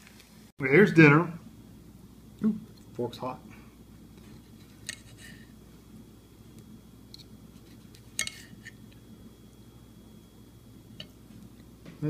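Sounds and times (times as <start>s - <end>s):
cutlery scraping a ceramic plate: 4.4s - 5.5s, 7.2s - 8.8s.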